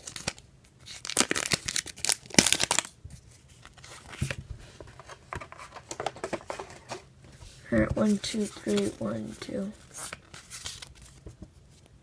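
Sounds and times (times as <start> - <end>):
foil wrapper ripping and crinkling: 0.0 - 2.9.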